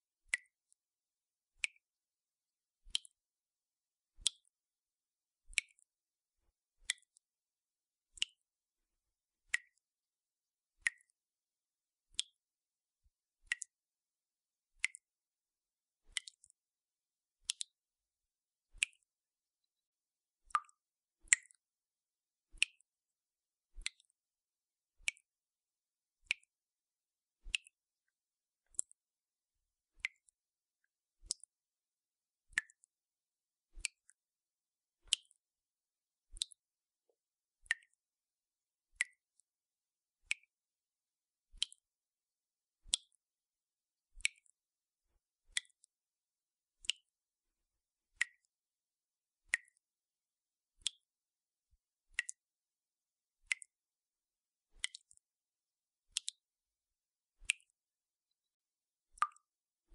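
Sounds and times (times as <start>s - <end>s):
water dripping from tap: 16.1s - 16.6s, 20.5s - 21.6s, 23.8s - 24.1s, 32.6s - 32.9s, 35.1s - 35.4s, 41.6s - 41.8s, 48.2s - 48.5s, 49.5s - 49.8s, 50.8s - 51.1s, 52.2s - 52.4s, 54.8s - 55.2s, 56.1s - 56.4s, 59.2s - 59.6s.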